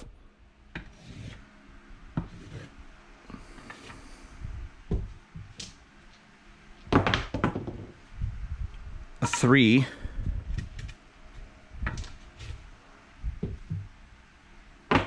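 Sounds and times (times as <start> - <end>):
stick rubbing and knocking on felt: 0.8 - 1.4, 2.2 - 2.7.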